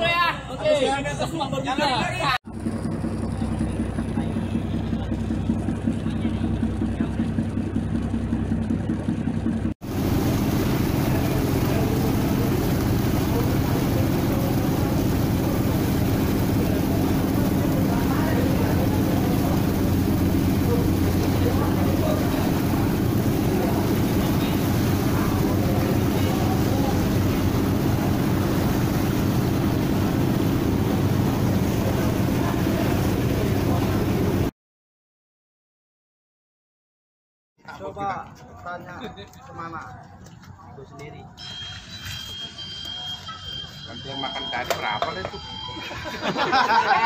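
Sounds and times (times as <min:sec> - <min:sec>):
ship engine humming: 0:02.0 - 0:34.5, 0:41.3 - 0:47.0
propeller wash churning: 0:02.5 - 0:34.5.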